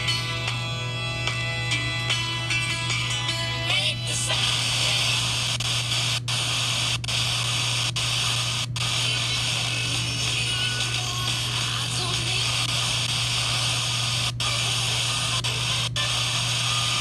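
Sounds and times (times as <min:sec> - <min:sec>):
radio station music: 0:00.0 - 0:17.0
radio static hiss: 0:03.7 - 0:17.0.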